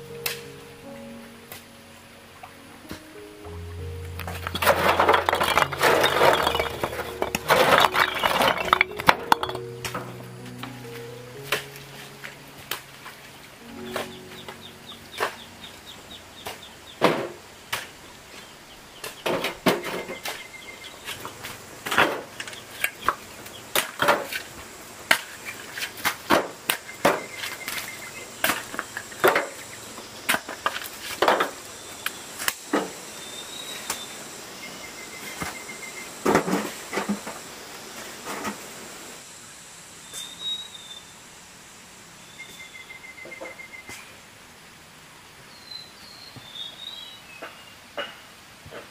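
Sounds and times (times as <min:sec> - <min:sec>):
trilled chirp: 0:13.6 - 0:17.0, 0:19.8 - 0:21.3, 0:26.8 - 0:28.4.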